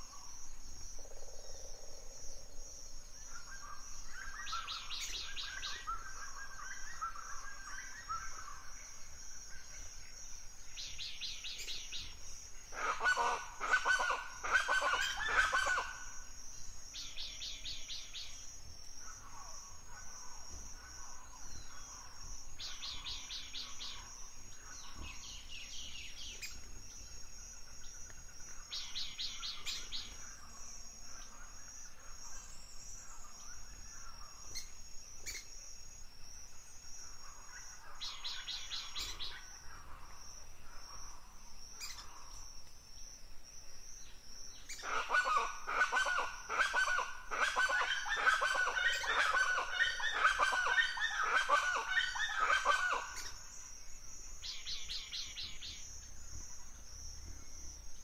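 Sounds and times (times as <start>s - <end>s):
many overlapping bird calls: 0.0s - 42.6s, 44.0s - 58.0s
birds singing trilled phrases: 44.6s - 53.7s.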